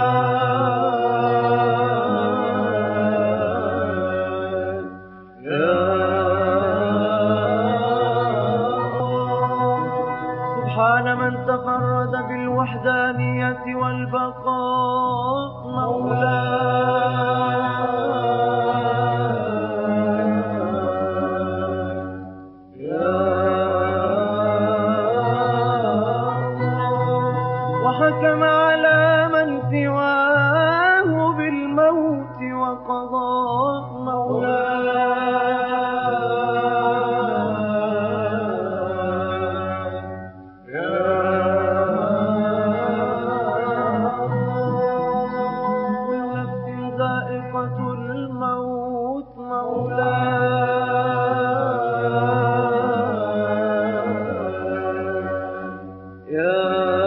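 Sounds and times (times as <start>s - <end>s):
man chanting melismatic notes: 0.0s - 22.1s.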